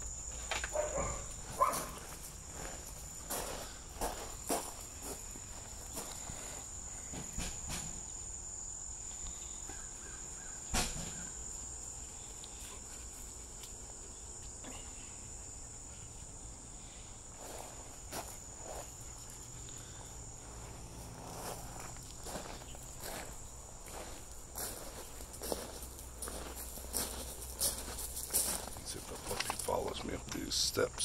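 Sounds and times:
insects trilling: 0:00.0 - 0:31.0
footsteps on gravel: 0:00.4 - 0:06.7, 0:17.4 - 0:19.0, 0:20.3 - 0:30.2.

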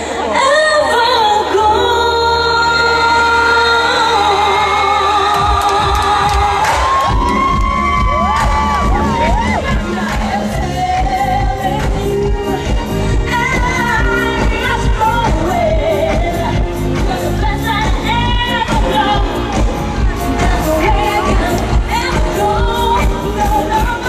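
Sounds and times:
woman singing into a microphone: 0:00.0 - 0:24.0
band playing with steady beat: 0:05.4 - 0:24.0.

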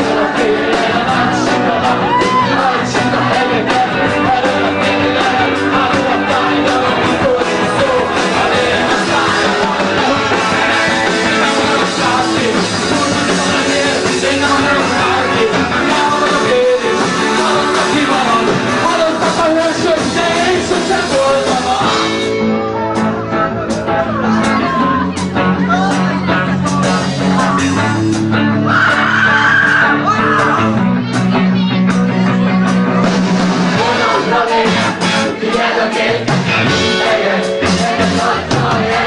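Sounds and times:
person singing: 0:00.0 - 0:27.8, 0:33.8 - 0:39.0
rock band playing punk rock: 0:00.0 - 0:39.0
steady drum beat: 0:00.0 - 0:39.0.

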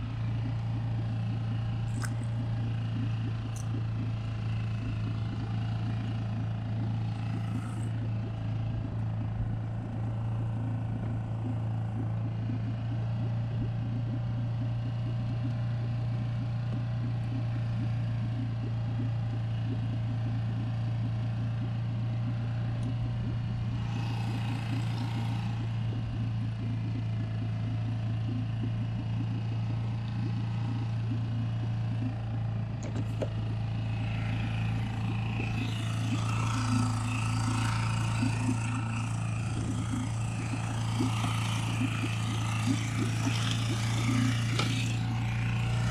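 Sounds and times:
outboard motor running: 0:00.0 - 0:45.9.

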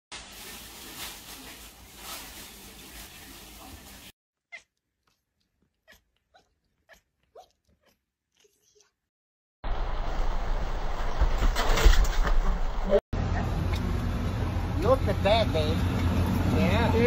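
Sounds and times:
noisy rustle: 0:00.2 - 0:04.1, 0:09.7 - 0:12.9.

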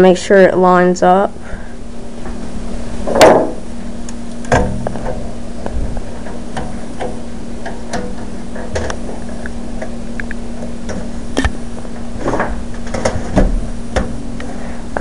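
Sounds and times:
steady low hum: 0:00.0 - 0:15.0
knock and rustle: 0:03.1 - 0:03.6.

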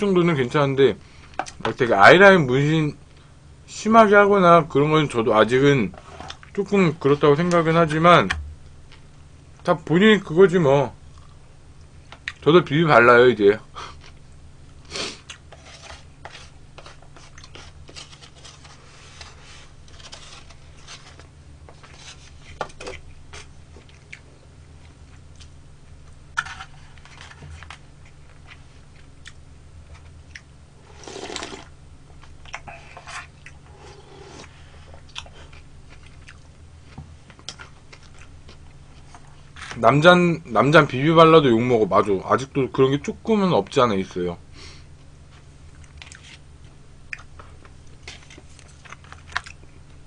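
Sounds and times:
steady low hum: 0:00.0 - 0:50.0
person chewing: 0:11.1 - 0:12.4, 0:15.0 - 0:18.7, 0:20.0 - 0:25.6, 0:27.0 - 0:39.7, 0:47.1 - 0:49.8.

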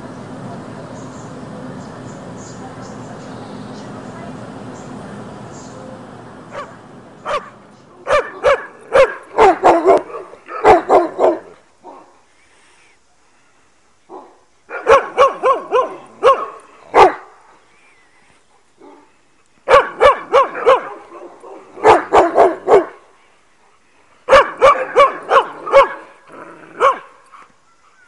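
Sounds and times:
dog barking: 0:06.5 - 0:12.1, 0:14.1 - 0:17.4, 0:19.7 - 0:23.0, 0:24.3 - 0:26.1, 0:26.8 - 0:27.2.

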